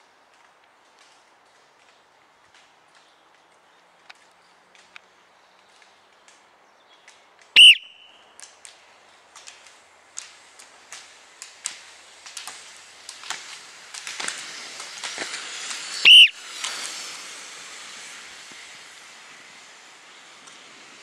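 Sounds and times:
ski poles clicking on asphalt: 0.0s - 21.0s
hiss of roller skis: 7.2s - 21.0s
loud whistle blast: 7.6s - 8.2s, 16.0s - 16.4s.

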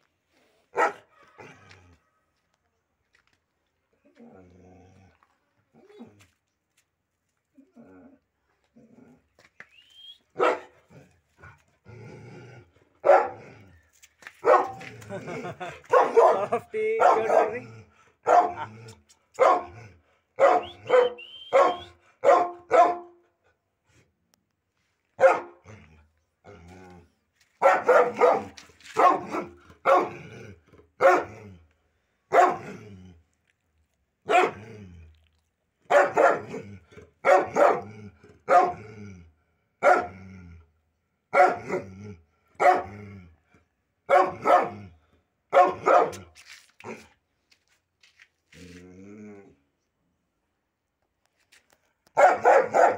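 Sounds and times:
dog barking: 0.7s - 1.2s, 10.4s - 10.8s, 13.0s - 13.4s, 14.4s - 14.8s, 15.9s - 18.7s, 19.4s - 19.8s, 20.4s - 23.2s, 25.2s - 25.6s, 27.6s - 30.2s, 31.0s - 31.4s, 32.3s - 32.8s, 34.3s - 34.6s, 35.9s - 36.6s, 37.2s - 37.9s, 38.5s - 38.8s, 39.8s - 40.1s, 41.3s - 41.8s, 42.6s - 42.9s, 44.1s - 44.9s, 45.5s - 46.3s, 52.1s - 52.9s.

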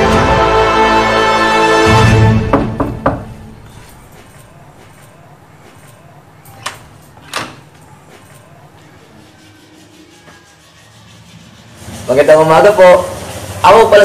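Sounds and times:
knocks on a door: 2.5s - 3.4s.

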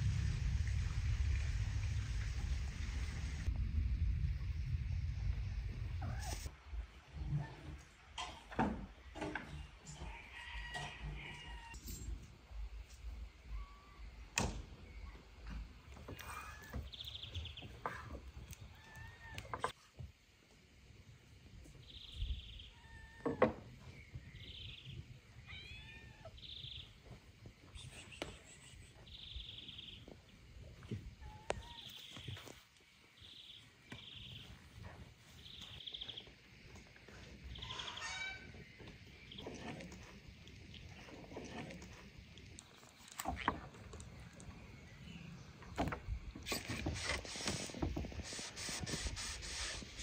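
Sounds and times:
low wind rumble: 0.0s - 7.5s.

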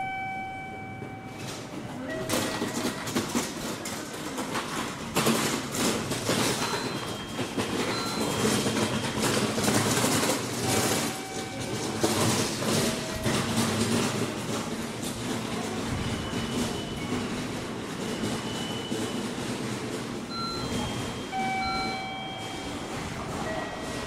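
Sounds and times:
train wheels clattering on rails: 0.0s - 24.0s.

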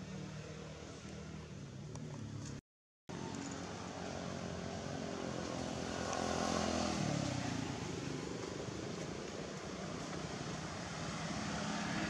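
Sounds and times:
engine passing by: 3.1s - 12.0s.

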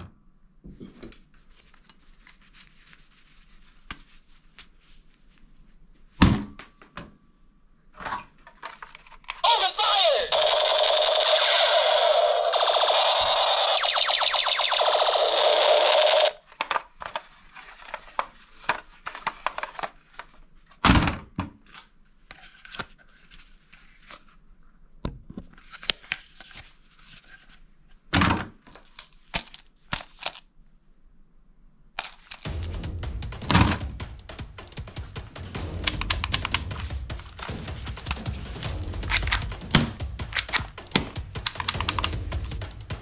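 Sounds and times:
toy gun electronic firing sound: 9.4s - 16.4s.

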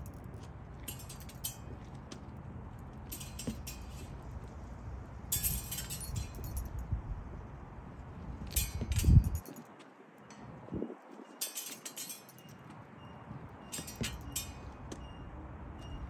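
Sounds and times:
steel blades clinking and scraping: 0.0s - 6.8s, 8.4s - 10.6s, 11.2s - 16.0s
steady low rumble: 0.0s - 9.5s.

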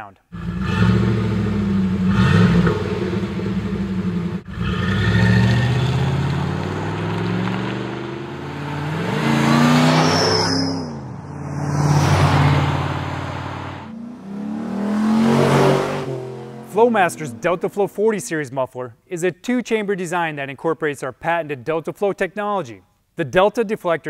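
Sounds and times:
vee eight exhaust idling and revving: 0.3s - 9.9s, 12.3s - 18.3s.

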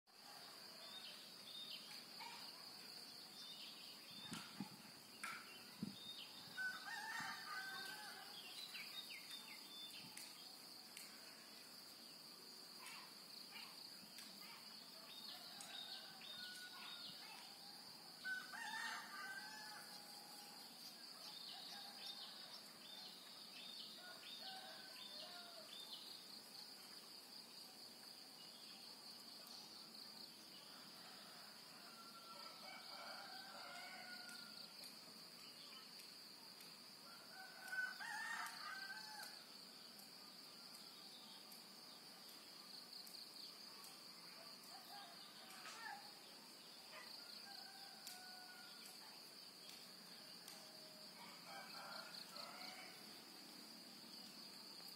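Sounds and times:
rooster crowing: 6.6s - 8.4s, 18.2s - 20.6s, 37.2s - 39.4s.

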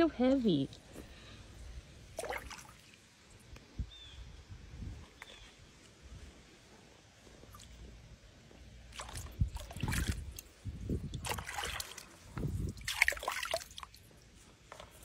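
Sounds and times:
water sloshing in a tub: 2.0s - 3.4s, 8.7s - 15.0s.

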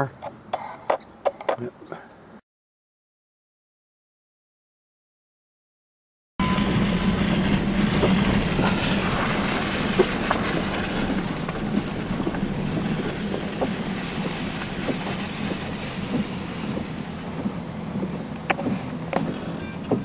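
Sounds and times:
engine hum: 6.4s - 20.0s
road noise: 6.4s - 20.0s
knocks and rattles: 6.6s - 20.0s.

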